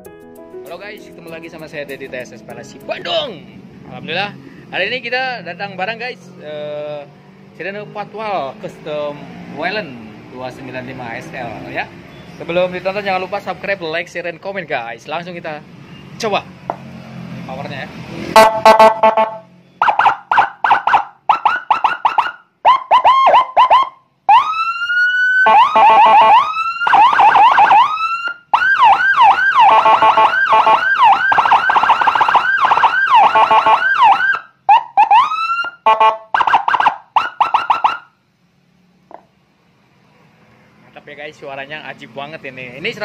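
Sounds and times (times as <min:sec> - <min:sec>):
police siren wailing and yelping: 0:18.4 - 0:38.1.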